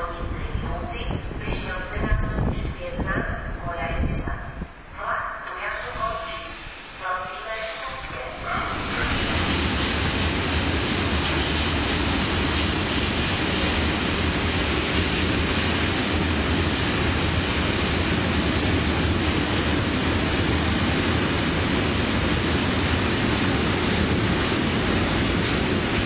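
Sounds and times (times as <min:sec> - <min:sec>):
wind on microphone: 0:00.0 - 0:05.0
electric train approaching: 0:04.8 - 0:26.0.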